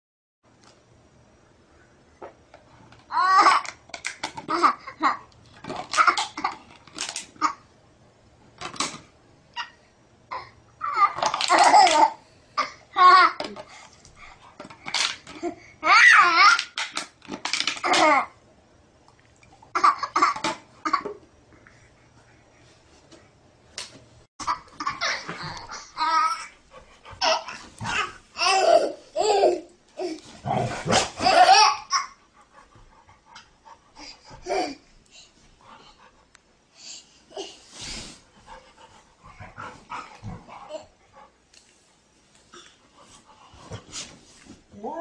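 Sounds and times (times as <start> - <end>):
baby laughing and babbling: 24.4 - 30.3, 31.2 - 32.2, 34.0 - 34.9.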